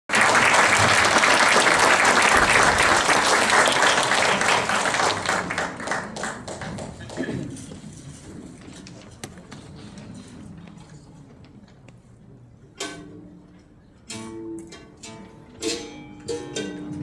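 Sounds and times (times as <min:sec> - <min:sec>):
audience applauding: 0:00.1 - 0:07.6.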